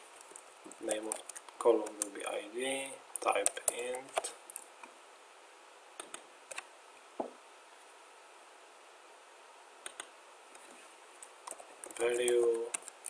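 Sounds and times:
steady faint hiss: 0.0s - 13.0s
computer mouse clicks: 3.2s - 4.7s, 6.0s - 6.7s, 9.8s - 13.0s.

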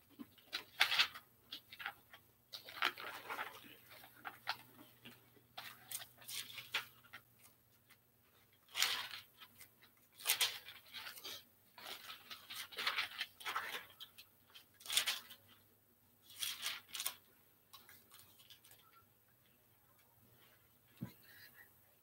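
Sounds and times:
thin pages rustling and flicking: 0.2s - 7.6s, 8.6s - 15.6s, 16.2s - 18.9s.

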